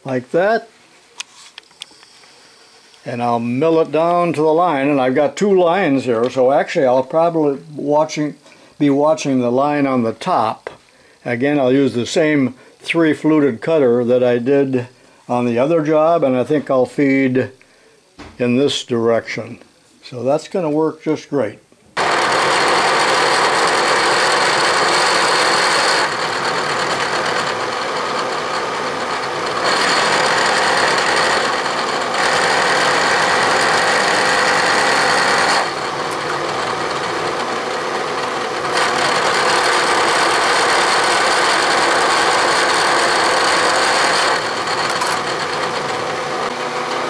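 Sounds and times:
milling cutter cutting metal: 22.0 - 47.0
spindle running: 22.0 - 47.0.

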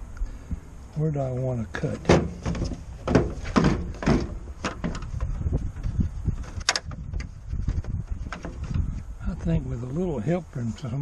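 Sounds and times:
plastic housing knocking and scraping: 1.9 - 9.0.

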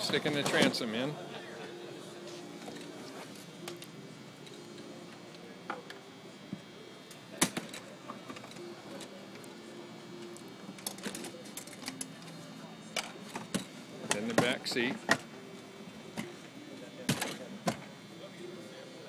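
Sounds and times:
crowd murmur: 0.0 - 19.0.

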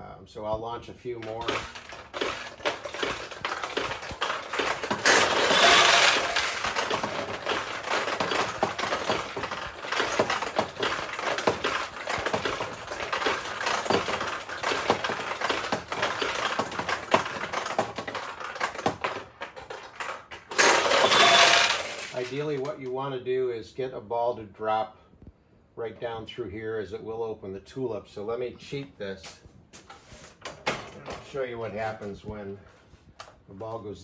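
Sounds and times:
steel balls clattering through pins: 1.1 - 22.8.

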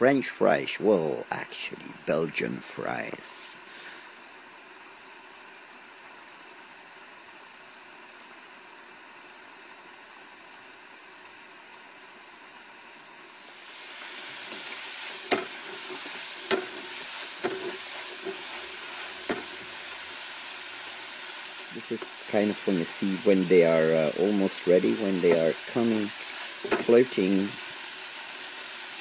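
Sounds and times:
fries sizzling in oil: 0.0 - 29.0
hot oil hissing: 0.0 - 29.0
oil popping and crackling: 13.4 - 29.0.

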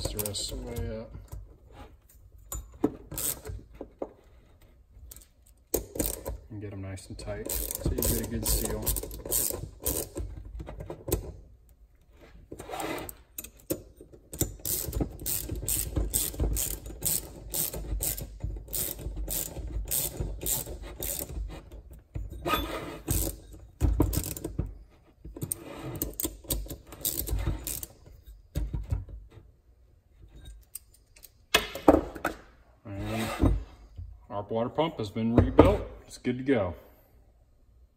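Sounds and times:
ratchet wrench clicking: 2.6 - 3.6, 5.1 - 6.4, 7.4 - 10.2, 13.4 - 21.5, 23.1 - 24.5, 26.0 - 28.0.

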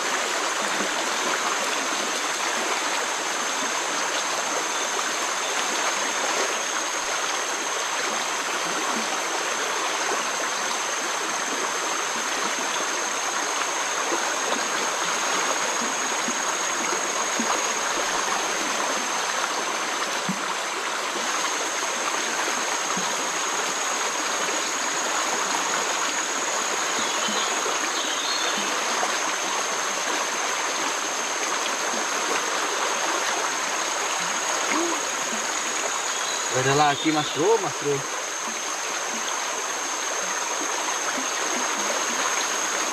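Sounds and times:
river water rushing: 0.0 - 42.9
thin high tone: 34.1 - 38.2.

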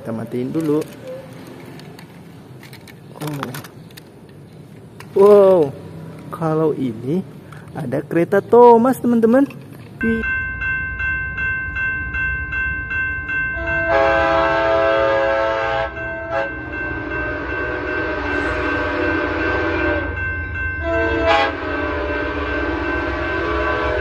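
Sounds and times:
train horn blasts: 13.6 - 20.2, 20.8 - 24.0.

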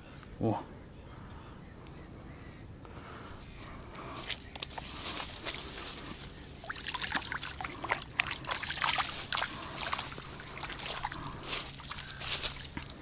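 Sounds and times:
water splashing and trickling: 4.6 - 13.0.

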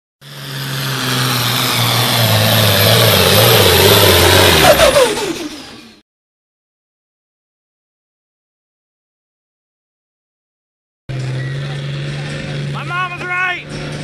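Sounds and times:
tractor engine under load: 0.2 - 6.0, 11.1 - 14.0.

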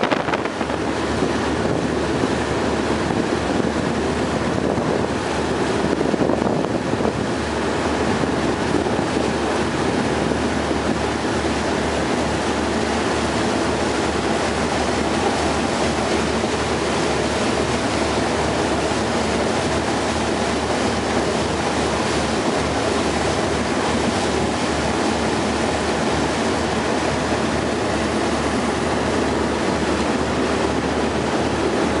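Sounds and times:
boat engine running: 0.0 - 32.0
water against boat hull: 0.0 - 32.0
wind on microphone: 0.0 - 32.0.

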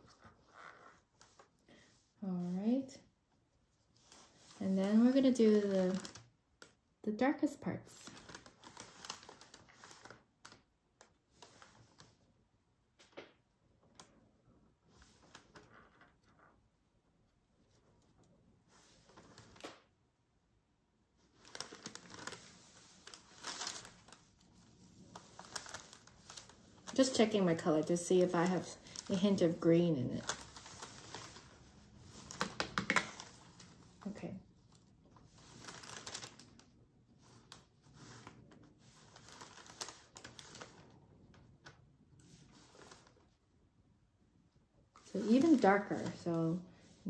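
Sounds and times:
paper towel crinkling: 3.8 - 6.3, 8.0 - 12.3, 21.2 - 43.4, 44.9 - 47.0.

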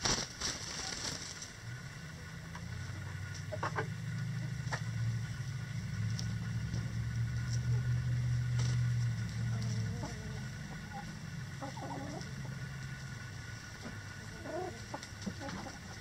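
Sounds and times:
low engine hum: 0.0 - 16.0
hen clucking: 2.6 - 5.0, 9.5 - 16.0.

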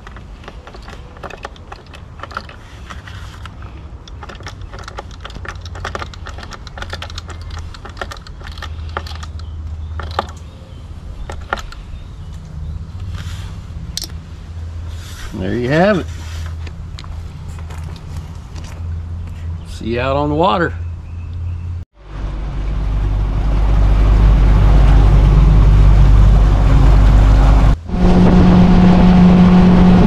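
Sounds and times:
steady low rumble: 20.8 - 30.0.

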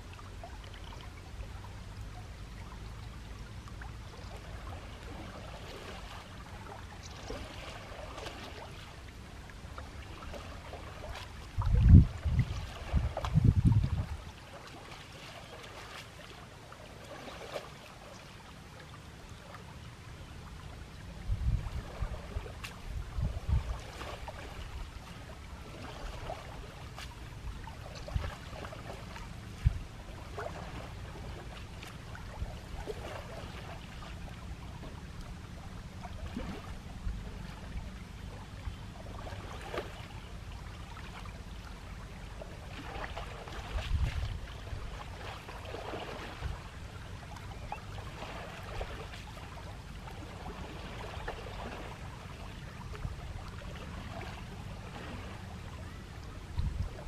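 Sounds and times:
steady low rumble: 0.0 - 14.6, 19.2 - 57.0
water sloshing and splashing: 0.0 - 57.0
low gusts: 11.4 - 14.4, 20.5 - 33.6.

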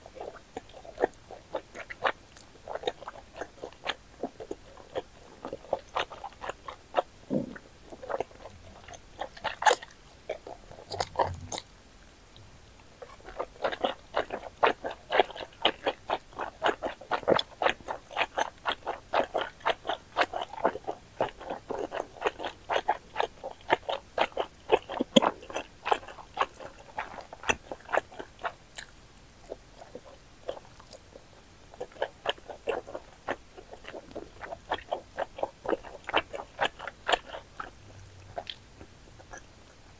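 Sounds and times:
chewing noodles: 0.0 - 11.7, 12.8 - 39.9.

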